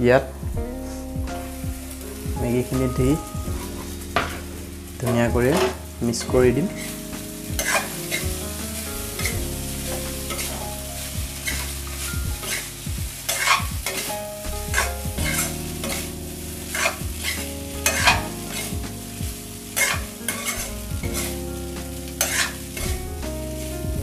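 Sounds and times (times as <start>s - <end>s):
noodles sizzling: 0.2s - 24.0s
spatula scraping iron pan: 7.6s - 8.2s, 9.9s - 10.6s, 11.4s - 12.7s, 13.3s - 14.1s, 14.8s - 16.1s, 16.7s - 18.7s, 19.8s - 21.3s, 22.2s - 23.0s.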